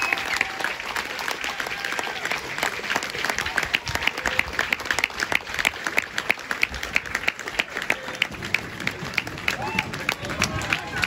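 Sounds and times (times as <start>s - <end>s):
close sharp claps: 0.0s - 11.0s
crowd applauding: 0.0s - 11.0s.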